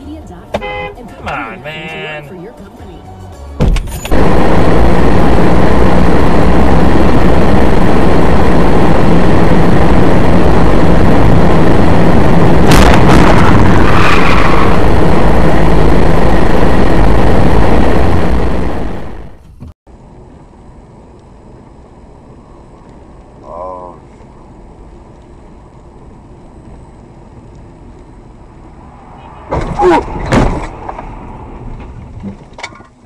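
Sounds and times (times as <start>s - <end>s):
engine and road noise inside car: 0.0s - 12.7s, 14.9s - 33.0s
sudden bang: 12.6s - 16.1s, 29.2s - 32.0s.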